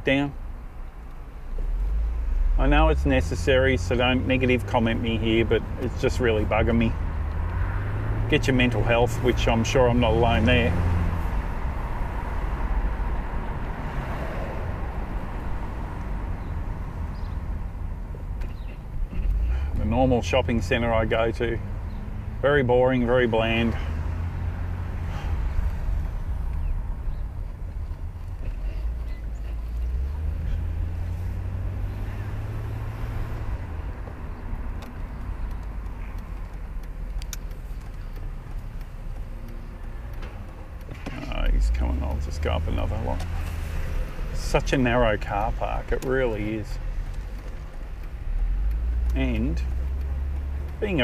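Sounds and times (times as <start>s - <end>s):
tyre and engine noise: 0.0s - 51.0s
wind rumble in open car: 1.4s - 51.0s
faint clicks: 34.0s - 41.2s, 44.7s - 51.0s.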